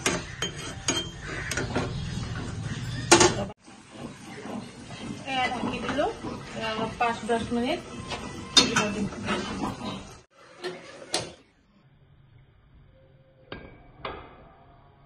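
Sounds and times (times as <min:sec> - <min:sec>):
metal cookware knocking: 0:00.0 - 0:02.2, 0:03.0 - 0:03.5, 0:08.5 - 0:09.2
woman speaking: 0:05.2 - 0:07.9.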